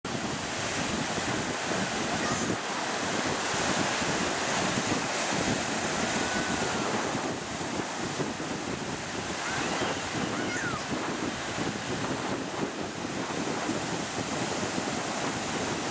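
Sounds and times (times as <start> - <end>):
ocean surf breaking: 0.1 - 15.9
wind buffeting microphone: 0.1 - 15.9.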